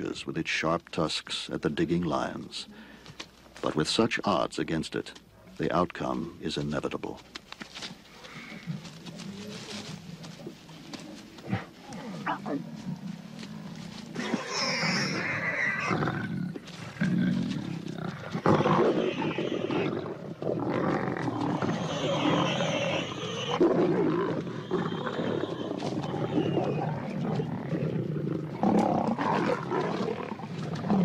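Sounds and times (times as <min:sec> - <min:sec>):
lions snarling and growling: 0:08.1 - 0:31.0.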